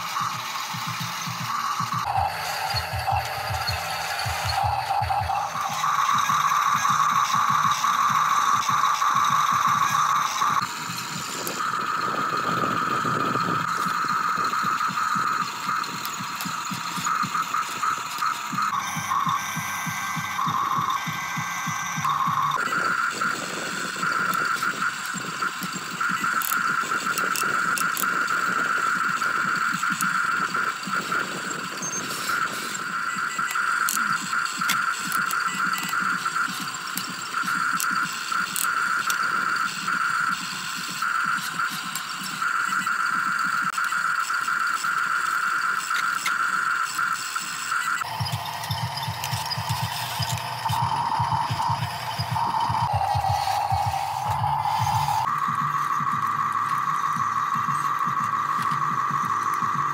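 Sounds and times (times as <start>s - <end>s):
gears rattling: 0.0s - 59.9s
small electric motors whining: 0.0s - 59.9s
sharp clicks: 44.8s - 59.9s.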